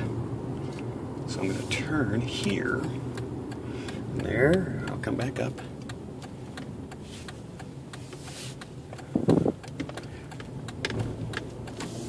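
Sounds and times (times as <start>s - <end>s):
car engine humming: 0.0s - 12.0s.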